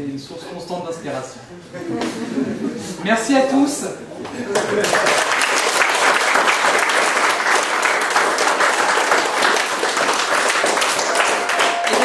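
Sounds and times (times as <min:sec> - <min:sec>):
audience clapping: 0:04.5 - 0:12.0.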